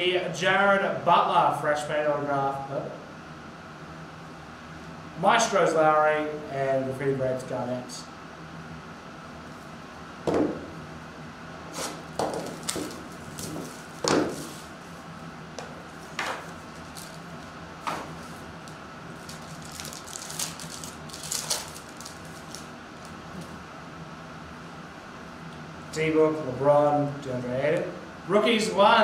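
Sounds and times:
cardboard box knocks and taps: 0:10.3 - 0:10.6
foil pack tearing and crinkling: 0:19.2 - 0:23.2.

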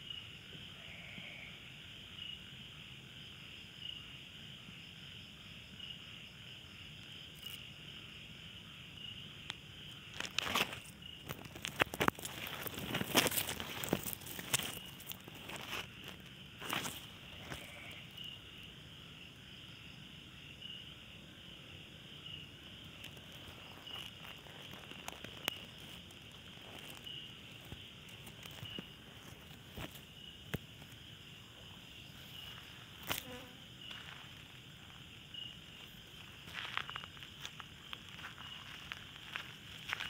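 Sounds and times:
night insects chirping: 0:00.0 - 0:40.0
clicks and rustles in dry grass: 0:10.0 - 0:18.3, 0:22.8 - 0:40.0.

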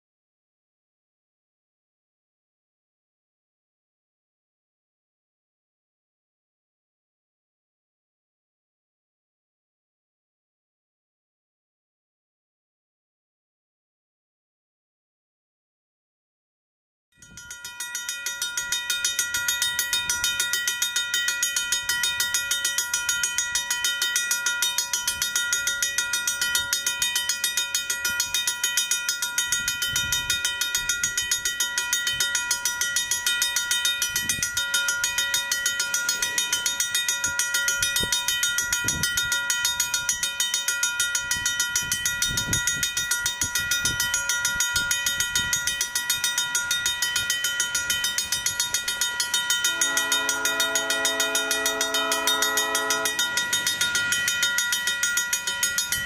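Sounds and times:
railroad crossing bell ringing: 0:17.2 - 0:56.0.

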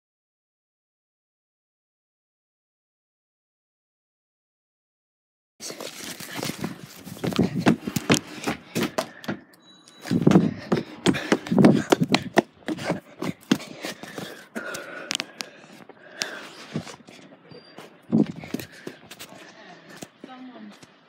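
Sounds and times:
heavy thumps: 0:06.4 - 0:09.4, 0:10.1 - 0:14.4.

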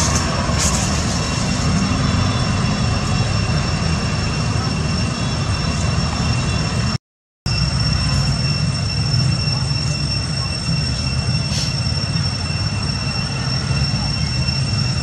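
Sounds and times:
constant high-pitched whine: 0:00.0 - 0:15.0.

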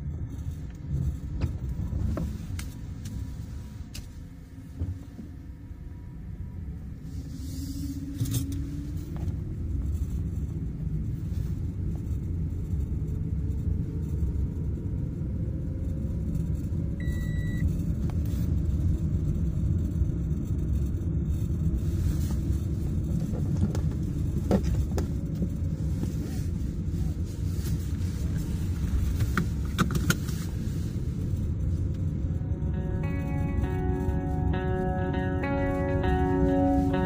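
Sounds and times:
car road and engine rumble: 0:00.0 - 0:37.0
short electronic beep: 0:17.0 - 0:17.6.

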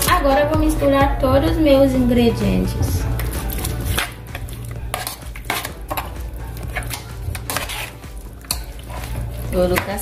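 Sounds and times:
metal spoon scraping a pot: 0:03.1 - 0:10.0.

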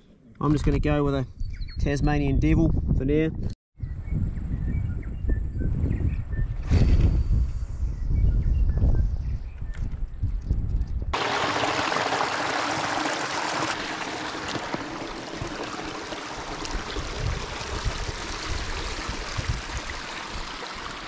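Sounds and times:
wind buffeting microphone: 0:01.3 - 0:21.0
stream trickling over stones: 0:11.2 - 0:21.0.

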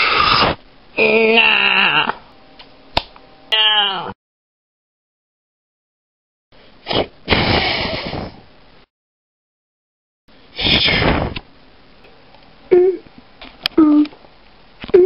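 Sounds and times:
hissing explosion-like bursts: 0:00.0 - 0:00.6, 0:10.6 - 0:11.4.

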